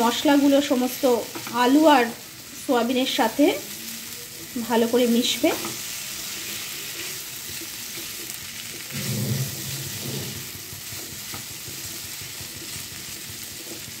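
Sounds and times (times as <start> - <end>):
food sizzling in a pan: 0.0 - 14.0
spatula scraping a pan: 5.6 - 14.0.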